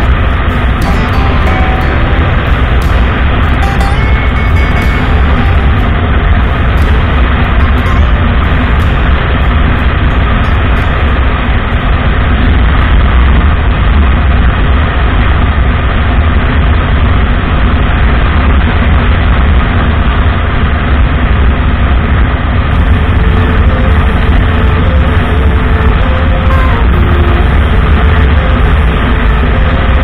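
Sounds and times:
motorcycle engine running: 0:00.0 - 0:13.7, 0:22.7 - 0:30.0.

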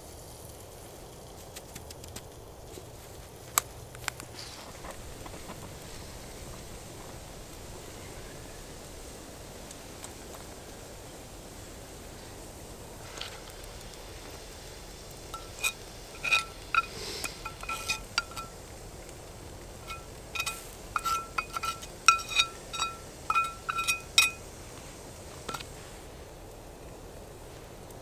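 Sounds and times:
metallic clinks of skillet: 0:15.3 - 0:18.6, 0:19.8 - 0:24.5, 0:25.5 - 0:25.7.

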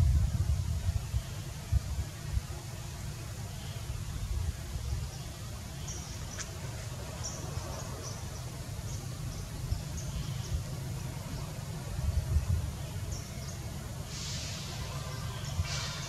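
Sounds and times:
steady low rumble: 0:00.0 - 0:03.1.

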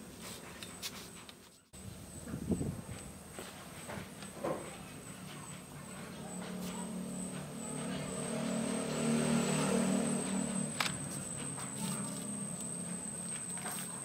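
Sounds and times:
vehicle engine passing by: 0:05.9 - 0:14.0.

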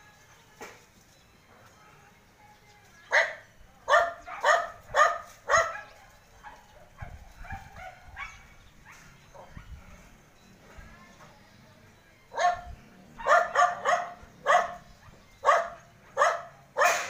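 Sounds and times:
dog barking: 0:03.1 - 0:09.7, 0:12.3 - 0:17.0.

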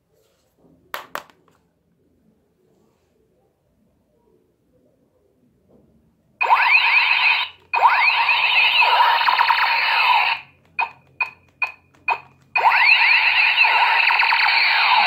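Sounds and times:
toy laser blaster zaps: 0:06.4 - 0:15.0.

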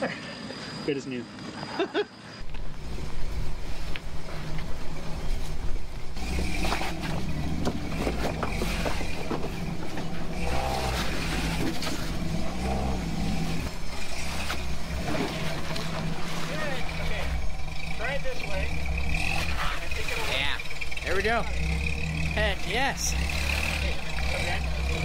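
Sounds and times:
truck engine running at low revs: 0:02.4 - 0:25.0
rocks knocking against truck: 0:06.6 - 0:10.2.

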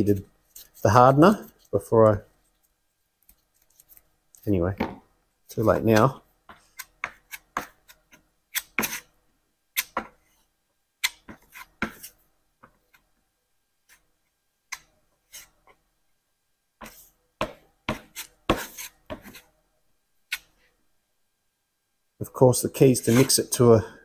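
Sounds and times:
filler mixing scraping strokes: 0:17.9 - 0:19.5, 0:23.0 - 0:23.6.

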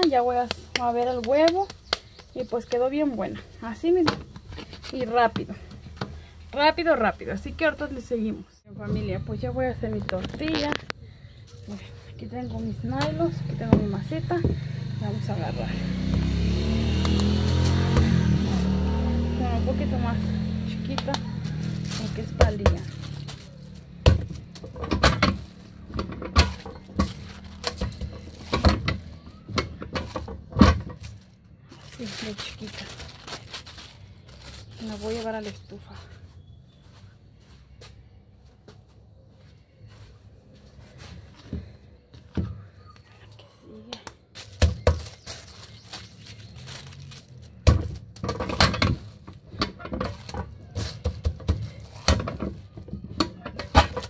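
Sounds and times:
hands slapping dough flat: 0:00.0 - 0:02.8.

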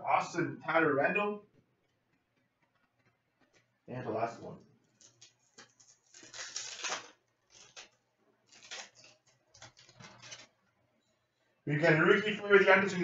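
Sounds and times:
foil wrapper crinkling: 0:04.9 - 0:10.6.

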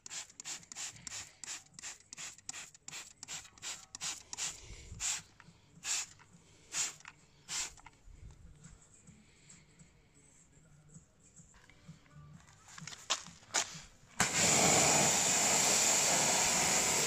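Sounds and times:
trigger sprayer squirting: 0:00.0 - 0:08.0, 0:14.2 - 0:17.0.

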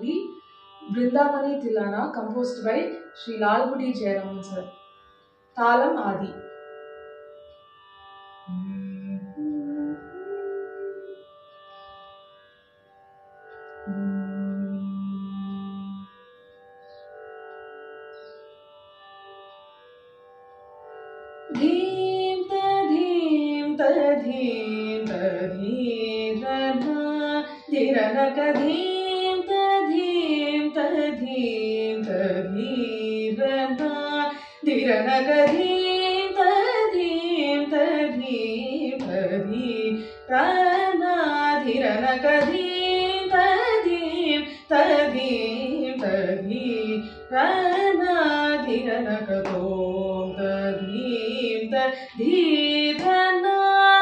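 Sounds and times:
woman singing: 0:00.0 - 0:04.7, 0:05.6 - 0:06.4, 0:08.6 - 0:11.2, 0:21.5 - 0:54.0.

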